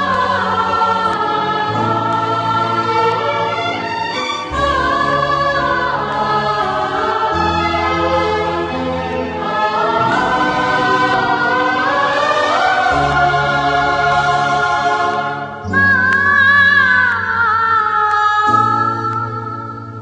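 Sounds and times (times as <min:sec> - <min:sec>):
steady bass notes: 0:00.0 - 0:17.3
voices singing held notes: 0:00.0 - 0:17.6.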